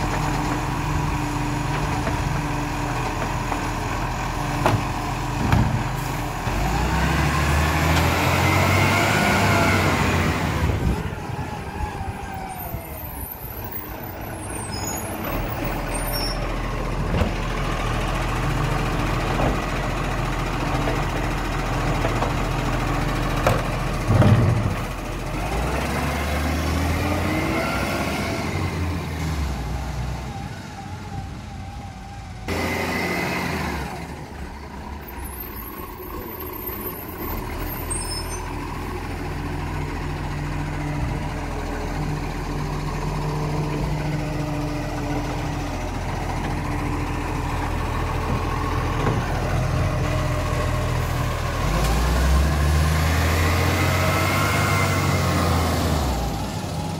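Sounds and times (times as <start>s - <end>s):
diesel engine running: 0.0s - 56.9s.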